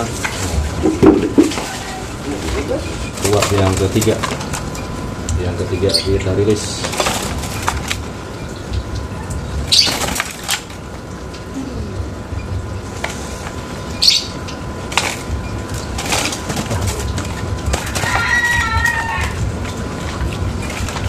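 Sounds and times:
bird flapping wings: 0:09.7 - 0:10.8, 0:14.9 - 0:21.0.

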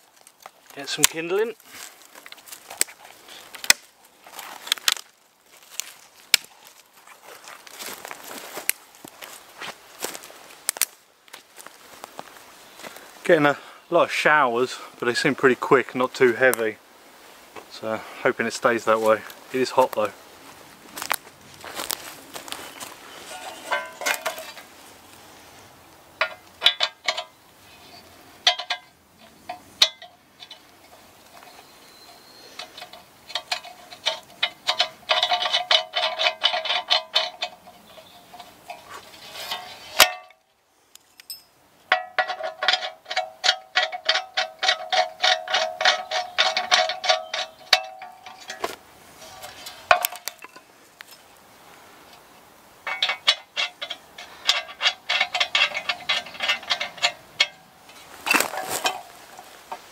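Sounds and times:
metal threads clicking and squeaking: 0:23.2 - 0:24.6, 0:26.6 - 0:40.3, 0:41.1 - 0:48.6, 0:52.8 - 0:58.0
metal clinks: 0:23.3 - 0:24.6, 0:28.4 - 0:40.4, 0:41.2 - 0:48.7, 0:52.8 - 0:59.9.

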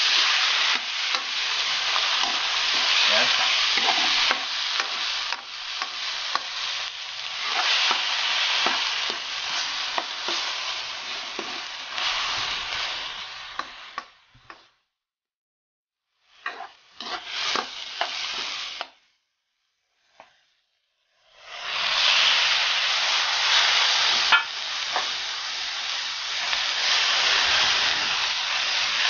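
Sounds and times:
spatula scraping a pan: 0:00.0 - 0:14.6, 0:16.4 - 0:18.8, 0:21.4 - 0:25.3
vegetables sizzling in oil: 0:00.0 - 0:14.8, 0:16.1 - 0:29.0.

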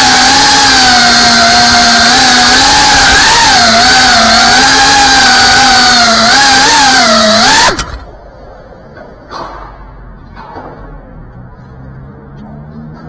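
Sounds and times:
drone motors whining: 0:00.0 - 0:08.2.

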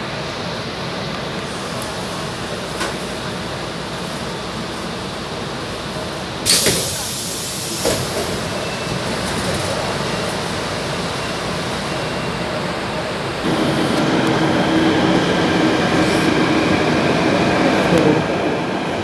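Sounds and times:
train hum pulling away: 0:00.0 - 0:19.0
train running noise: 0:00.0 - 0:19.0
train doors thump and hiss: 0:01.4 - 0:04.4, 0:06.4 - 0:10.6, 0:13.4 - 0:16.6.

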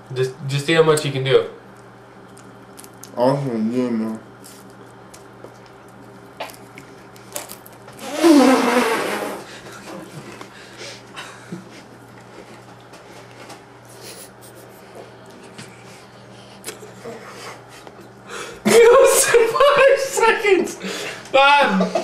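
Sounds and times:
crackers crunching and chewing: 0:01.7 - 0:03.2, 0:04.4 - 0:08.0.

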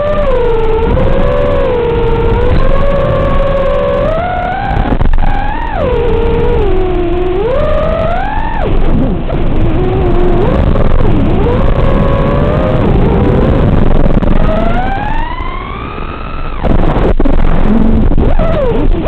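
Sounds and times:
quadcopter motors whining: 0:00.0 - 0:19.0.

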